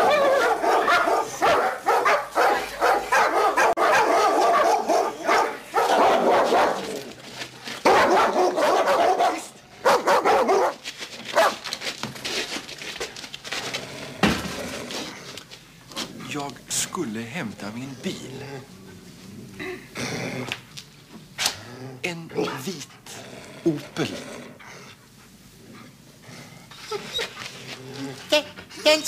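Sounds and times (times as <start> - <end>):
dog barking and yelping: 0.0 - 7.2, 7.8 - 11.6.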